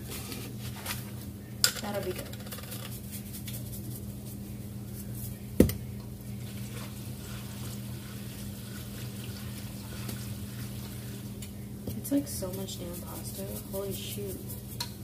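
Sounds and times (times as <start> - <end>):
salt shaker shaking: 1.9 - 5.4, 12.4 - 15.0.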